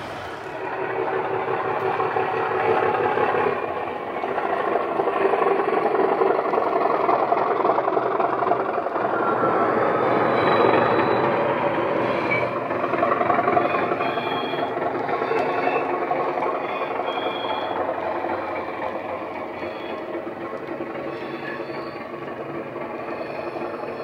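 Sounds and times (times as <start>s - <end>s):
model locomotive diesel engine sound: 0.0s - 24.0s
faint whistling tones: 9.8s - 12.6s, 13.5s - 20.2s, 20.9s - 22.4s, 23.0s - 24.0s.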